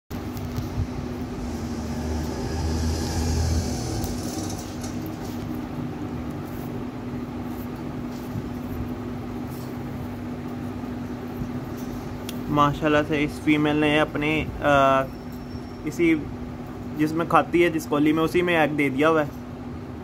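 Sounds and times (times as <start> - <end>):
low rumble: 0.1 - 5.7
mechanical hum: 0.1 - 20.0.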